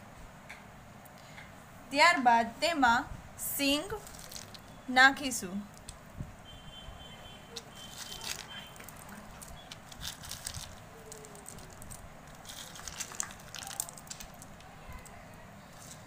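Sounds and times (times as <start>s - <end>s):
peanuts patting into a bowl: 4.0s - 4.6s, 7.6s - 15.1s.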